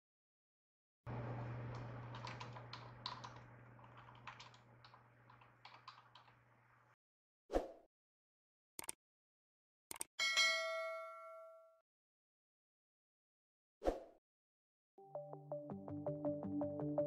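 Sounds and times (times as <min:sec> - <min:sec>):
keyboard typing: 0:01.2 - 0:06.8.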